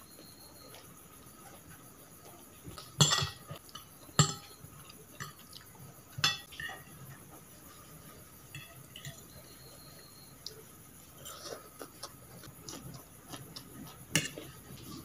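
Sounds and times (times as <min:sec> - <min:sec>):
cutlery clinking on china plate: 0:03.0 - 0:04.6, 0:06.2 - 0:06.8.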